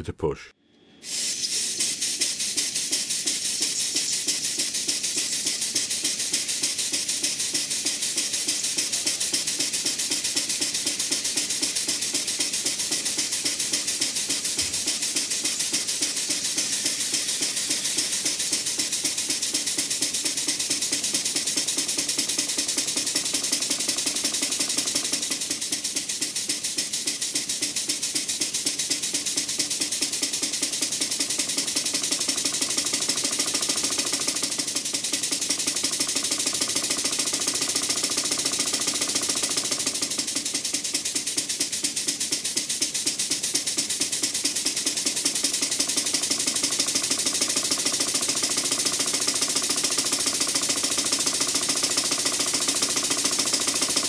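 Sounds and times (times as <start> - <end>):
air hissing and puffing: 1.0 - 42.4
model engine valve gear clattering: 1.6 - 54.0.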